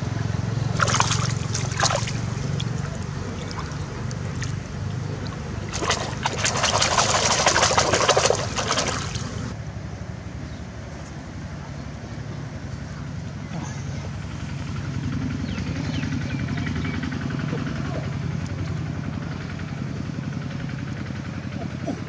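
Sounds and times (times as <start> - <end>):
steady low hum: 0.0 - 9.7
fish splashing in water: 0.6 - 9.6.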